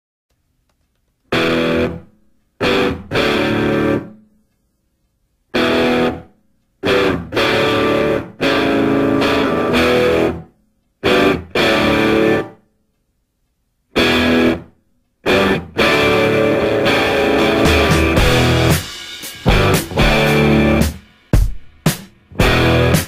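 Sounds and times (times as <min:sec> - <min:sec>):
distorted electric guitar: 0:01.3 - 0:04.2, 0:05.5 - 0:12.6, 0:13.9 - 0:21.5, 0:22.3 - 0:23.0.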